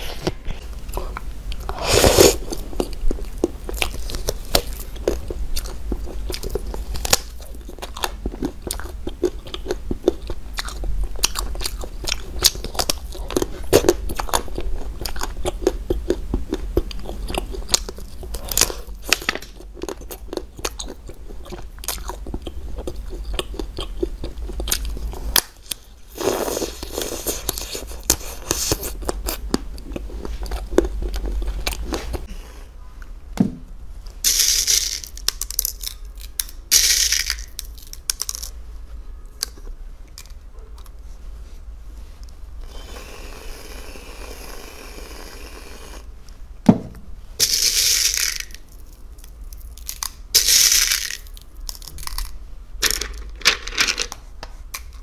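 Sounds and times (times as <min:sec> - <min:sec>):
chewing and crunching: 0:00.0 - 0:32.3
candy beads pattering: 0:34.2 - 0:38.6, 0:47.4 - 0:54.0.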